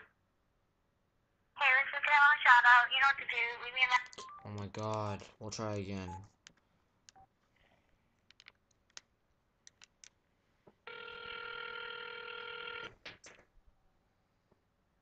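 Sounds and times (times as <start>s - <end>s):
phone ringback tone: 10.9s - 12.9s.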